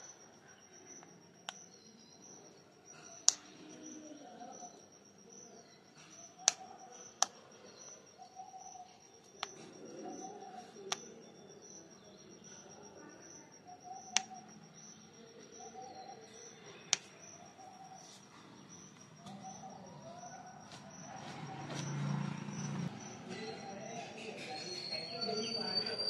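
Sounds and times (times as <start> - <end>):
high pulsing chirr: 0.0 - 26.0
parakeet beak clicks: 3.2 - 3.7, 6.4 - 6.6.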